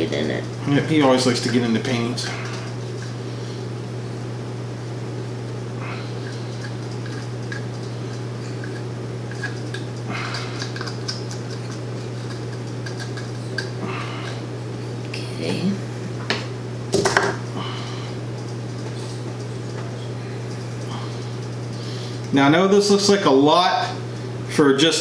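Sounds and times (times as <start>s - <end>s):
plastic cups clicking and tapping: 8.6s - 13.8s.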